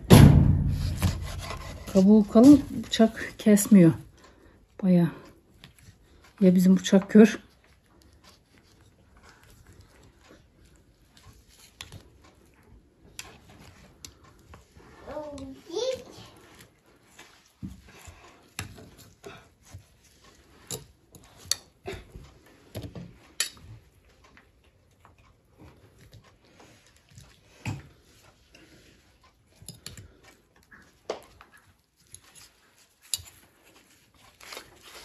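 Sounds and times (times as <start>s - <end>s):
knife scraping fruit rind: 0.7s - 3.8s.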